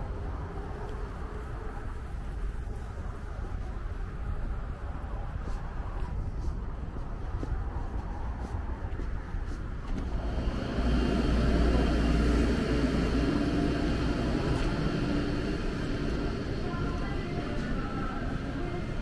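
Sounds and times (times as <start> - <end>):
ventilation blower humming: 9.8 - 19.0
faint high whine: 9.9 - 19.0.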